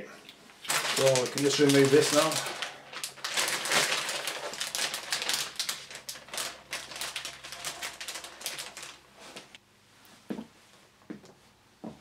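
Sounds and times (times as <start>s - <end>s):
plastic bag crinkling: 0.5s - 9.6s.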